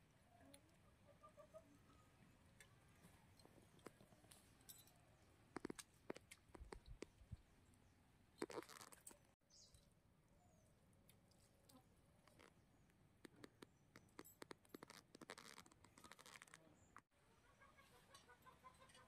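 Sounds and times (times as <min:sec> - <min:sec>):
small clicks: 0:08.4 - 0:09.2, 0:11.1 - 0:16.6.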